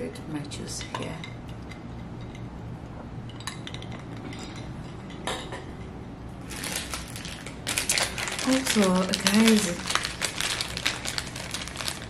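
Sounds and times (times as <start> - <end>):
crinkling rustle: 6.5 - 12.0.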